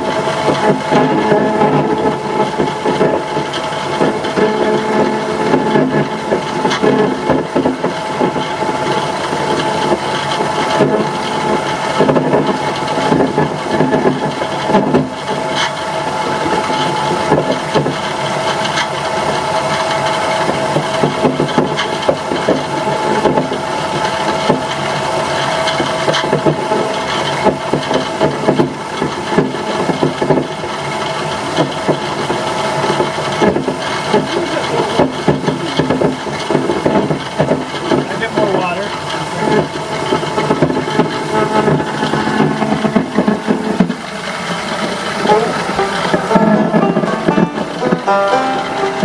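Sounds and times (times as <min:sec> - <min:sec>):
beater roll grinding: 0:00.0 - 0:49.0.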